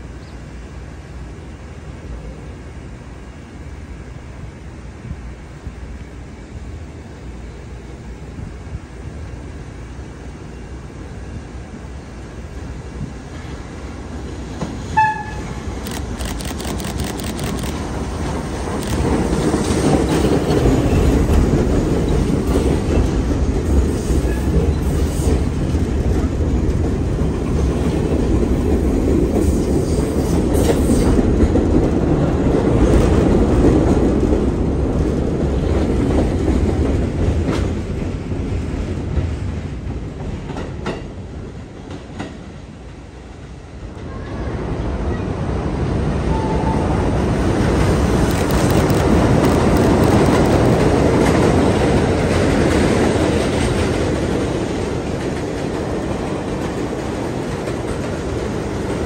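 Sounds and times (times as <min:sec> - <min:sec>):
train wheels clacking on rails: 0:13.0 - 0:42.9, 0:47.2 - 0:59.0
train horn toot: 0:14.9 - 0:15.6.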